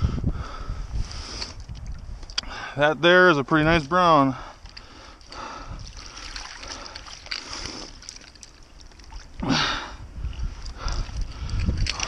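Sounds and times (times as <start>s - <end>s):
water splashing and sloshing: 3.6s - 12.0s.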